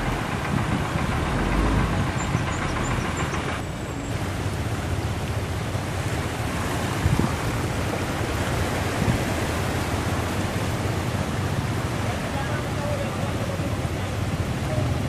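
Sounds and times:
low rumble: 0.0s - 4.1s
floodwater rushing and splashing: 0.0s - 15.0s.

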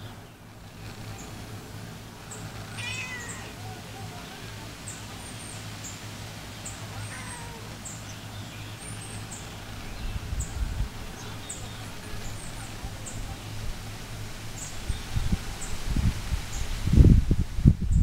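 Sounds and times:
faint bird calls: 2.2s - 6.0s.

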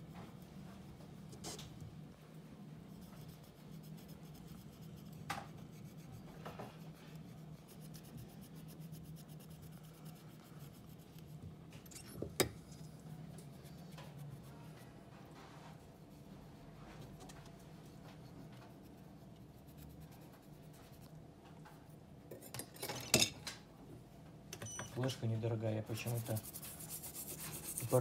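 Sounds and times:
faint rubbing: 25.0s - 28.0s.

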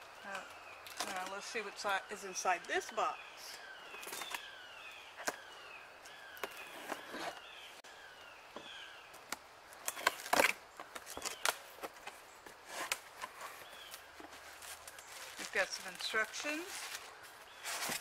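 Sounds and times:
birds chirping: 0.0s - 18.0s
cardboard flaps crackling: 9.9s - 18.0s.

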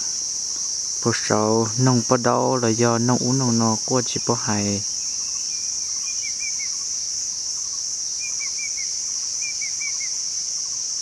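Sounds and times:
bird calling: 0.0s - 6.9s
high-pitched insect drone: 0.0s - 11.0s.

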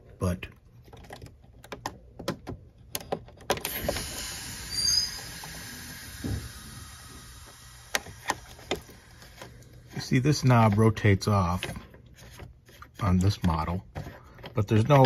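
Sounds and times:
steady hiss: 3.7s - 10.6s.

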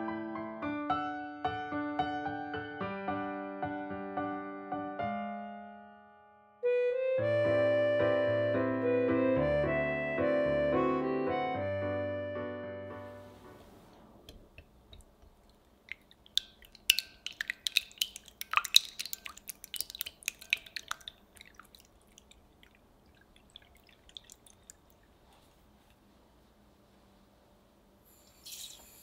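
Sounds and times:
whisk clicking against glass: 15.9s - 21.8s.

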